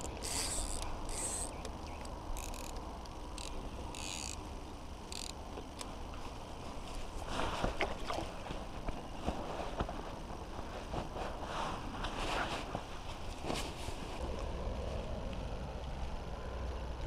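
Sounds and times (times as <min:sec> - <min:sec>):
fishing reel cranking: 0:00.0 - 0:05.9
low wind rumble: 0:00.0 - 0:17.0.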